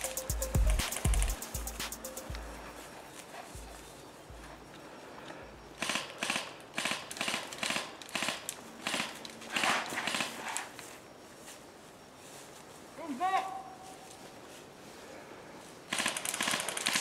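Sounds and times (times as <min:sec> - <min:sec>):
rustling and crunching through grass: 0:01.3 - 0:05.7, 0:09.3 - 0:16.0.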